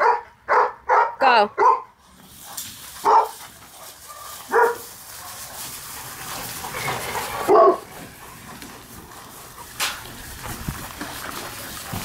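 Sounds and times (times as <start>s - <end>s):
dog barking: 0.0s - 1.9s, 3.0s - 4.9s, 7.4s - 7.9s.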